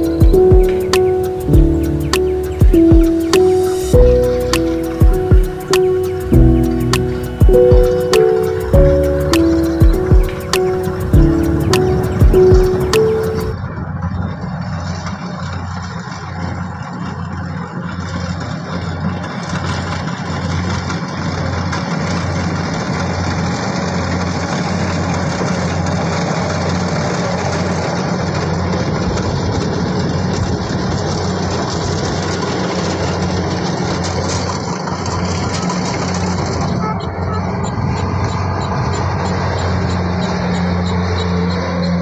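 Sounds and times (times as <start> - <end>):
combine harvester engine humming: 0.0 - 42.0.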